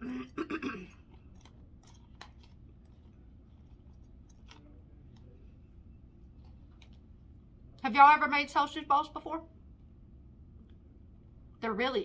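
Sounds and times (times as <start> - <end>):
low room hum: 0.0 - 12.0
plastic fork clicking on food: 1.1 - 2.9.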